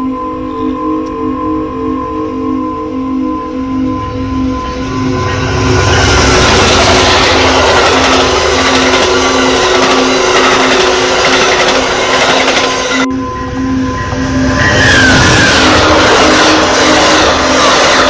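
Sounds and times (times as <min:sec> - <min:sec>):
train wheels rumbling on rails: 0:04.6 - 0:18.0.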